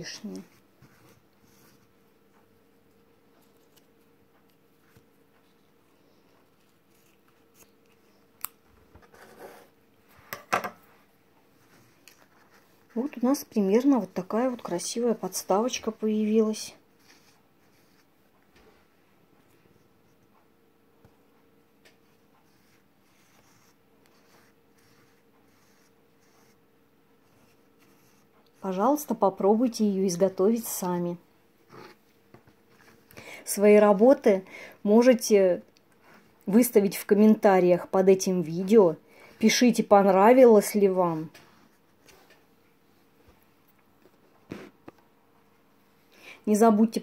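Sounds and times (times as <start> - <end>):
soft rustling and rubbing: 0.1 - 8.2, 9.0 - 20.4, 21.8 - 26.6, 31.6 - 33.1, 39.4 - 45.1.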